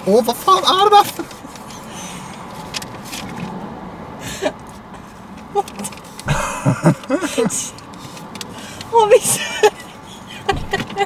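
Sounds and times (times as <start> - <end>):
car cabin hum: 4.6 - 11.0.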